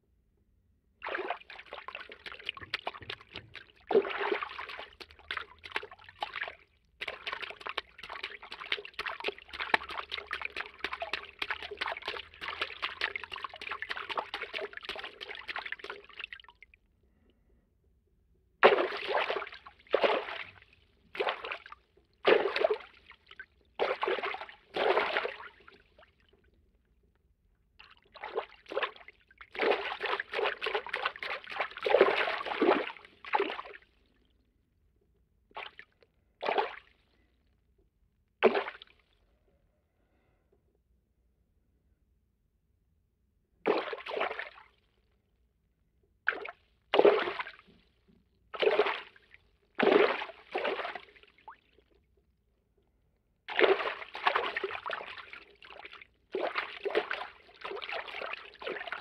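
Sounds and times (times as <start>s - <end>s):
water stirring and sloshing: 1.0s - 16.8s, 18.6s - 26.7s, 27.8s - 34.3s, 46.3s - 52.0s, 53.5s - 59.0s
short water movements: 1.0s - 17.2s, 18.6s - 26.6s, 27.8s - 34.3s, 35.5s - 37.3s, 46.3s - 52.0s, 53.5s - 59.0s.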